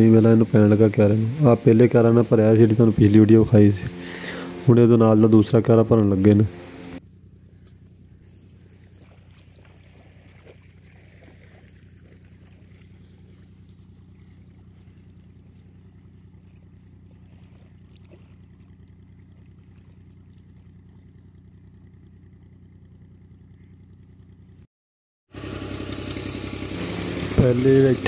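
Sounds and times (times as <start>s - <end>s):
rushing hiss of pumped water: 0.0s - 4.8s
diesel tractor engine running: 0.0s - 24.7s, 25.3s - 28.0s.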